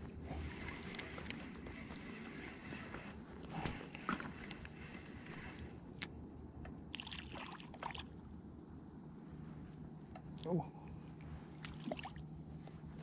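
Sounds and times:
insect chirping: 0.0s - 13.0s.

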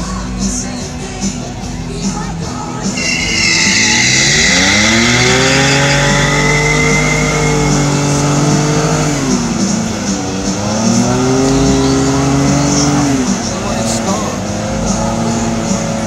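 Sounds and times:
tires spinning and squealing: 2.9s - 13.5s
engine revving at high revs: 3.0s - 13.4s.

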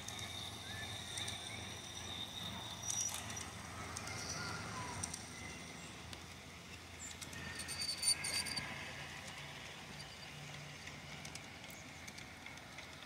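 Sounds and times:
faint clicks: 2.4s - 6.3s.

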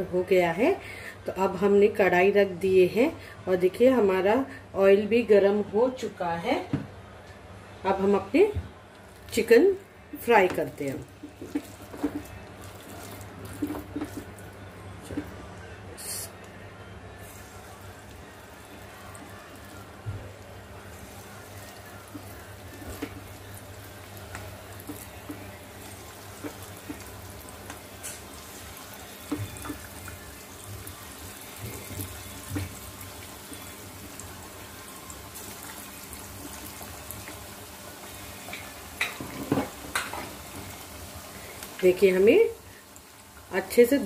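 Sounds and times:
food deep-frying in oil: 17.2s - 44.0s.

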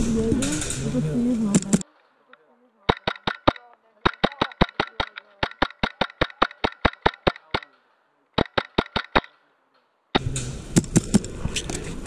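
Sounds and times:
airsoft rifle shots: 2.9s - 9.5s, 10.1s - 11.4s.

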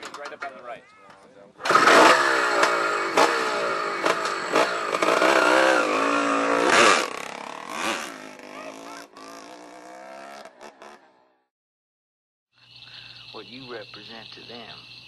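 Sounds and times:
dirt bike engine revving: 1.6s - 11.2s.

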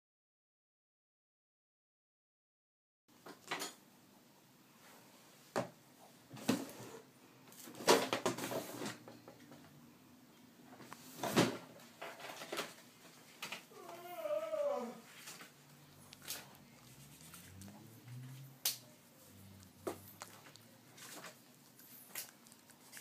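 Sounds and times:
dog crunching a chew treat: 19.3s - 23.0s.

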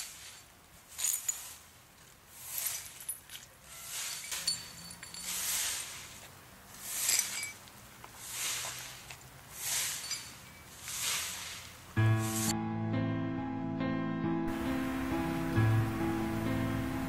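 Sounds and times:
swishing rushes of hiss: 5.3s - 7.5s, 8.2s - 12.5s
music: 12.0s - 17.0s.

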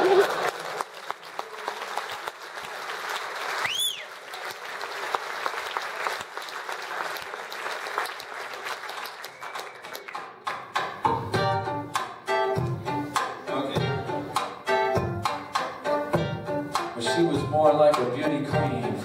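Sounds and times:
audience applauding: 0.0s - 10.6s
rising and falling whistle: 3.6s - 4.1s.

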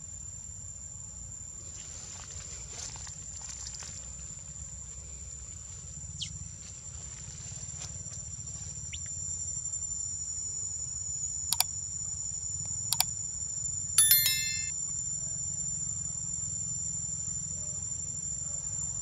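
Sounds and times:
mouse click sound effects: 14.0s - 14.7s.

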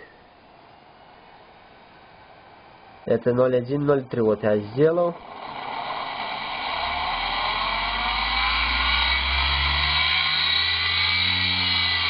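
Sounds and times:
electric motor hum and whine: 4.2s - 12.0s.

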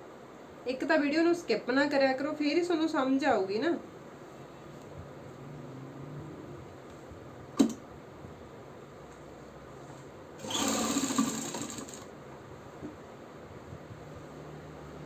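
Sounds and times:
sharp click: 7.6s - 7.8s
sewing machine running: 10.4s - 12.1s.

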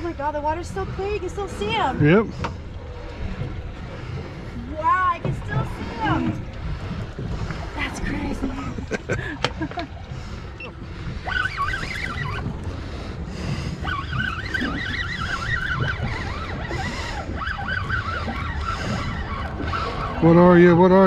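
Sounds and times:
low wind: 0.0s - 21.0s
water noise: 0.0s - 21.0s
fishing reel gears whining: 10.6s - 12.5s, 13.8s - 21.0s.

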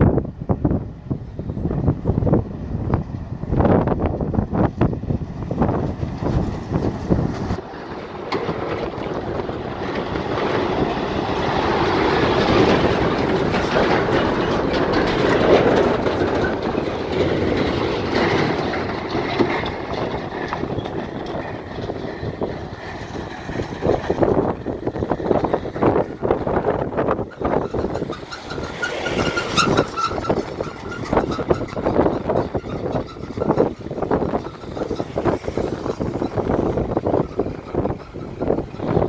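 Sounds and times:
heavy trucks passing: 0.0s - 39.0s.

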